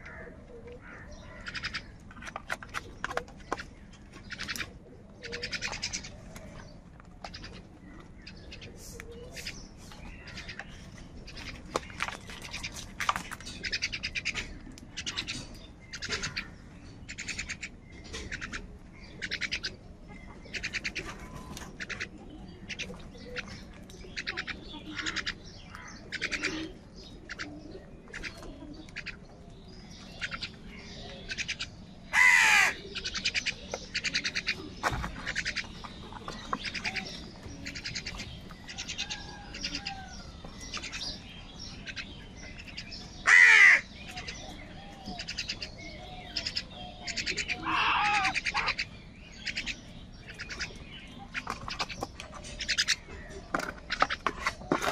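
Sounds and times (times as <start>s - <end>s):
crows cawing: 0.0s - 2.0s, 31.3s - 34.6s, 43.2s - 44.3s, 46.3s - 49.7s.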